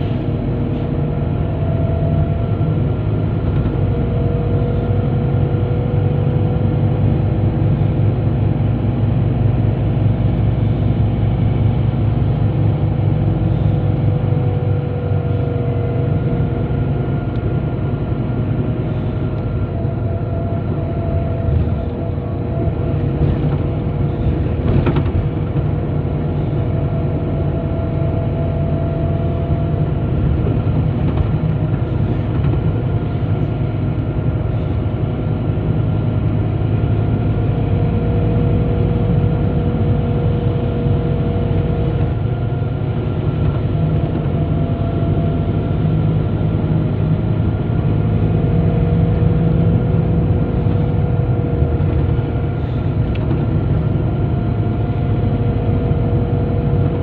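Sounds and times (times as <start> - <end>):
bus engine and road drone: 0.0 - 57.0
faint whine: 12.9 - 37.9.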